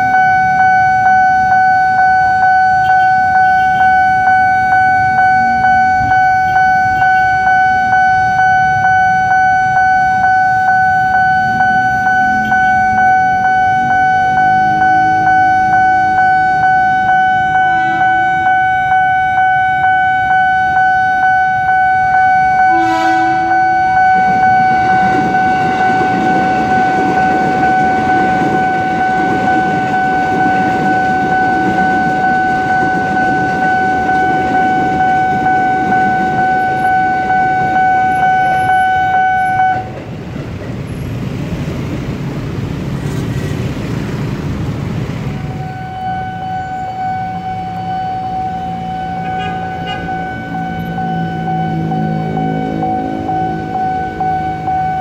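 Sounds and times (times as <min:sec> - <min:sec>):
train rumble and wheel noise: 0:00.0 - 0:55.0
train horn blast: 0:17.4 - 0:18.5, 0:22.6 - 0:31.2, 0:49.1 - 0:54.1.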